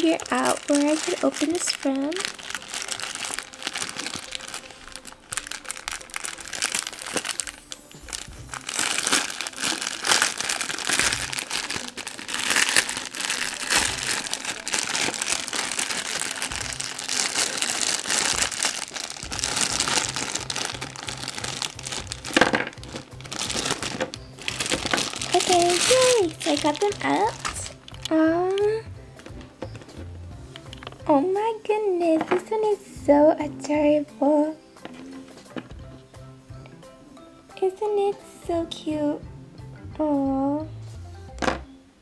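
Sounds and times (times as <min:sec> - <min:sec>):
plastic bag crinkling: 0:00.0 - 0:28.2.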